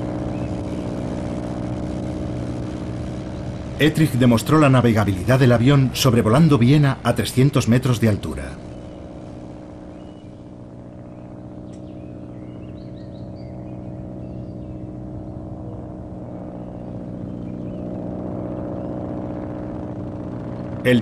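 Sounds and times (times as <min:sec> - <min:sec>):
propeller plane engine droning: 0:00.0 - 0:21.0
faint bird chirps: 0:00.2 - 0:01.0, 0:08.5 - 0:09.1, 0:09.8 - 0:19.0.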